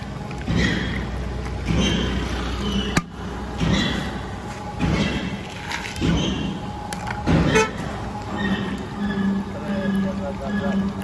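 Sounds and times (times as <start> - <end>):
vehicle horn toot: 7.5 - 7.9.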